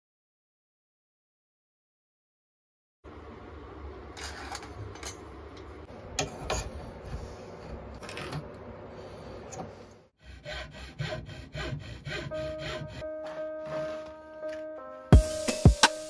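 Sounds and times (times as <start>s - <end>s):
hand tool scraping on wood: 10.2s - 14.2s.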